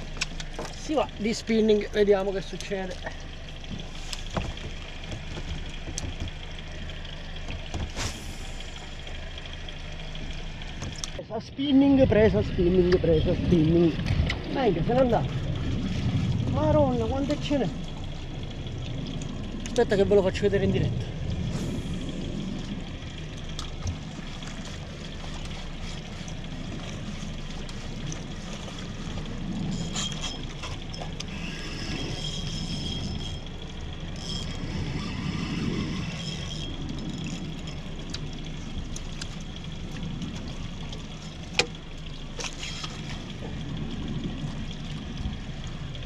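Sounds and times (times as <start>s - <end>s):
water slapping against boat hull: 0.0s - 8.4s, 22.5s - 31.3s, 36.7s - 46.0s
fishing reel whirring: 25.2s - 39.7s.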